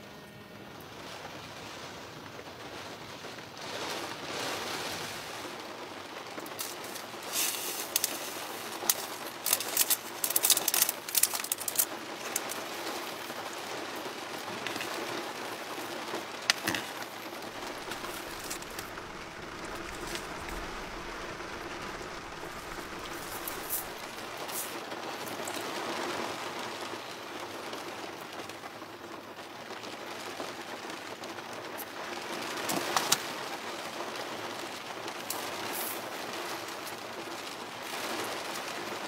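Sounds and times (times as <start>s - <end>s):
steady rain: 0.0s - 39.0s
sharp crackles and clicks: 5.5s - 28.8s, 31.7s - 39.0s.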